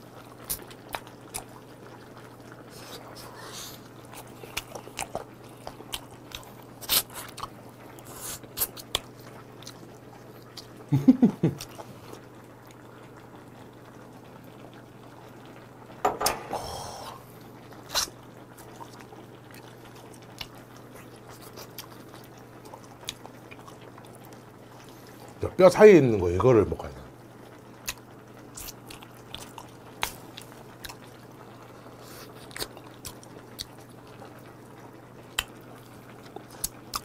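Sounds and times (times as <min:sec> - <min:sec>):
chewing and sucking on bones: 0:04.1 - 0:09.8, 0:17.9 - 0:25.0, 0:27.8 - 0:31.2, 0:31.9 - 0:34.3, 0:36.2 - 0:37.0.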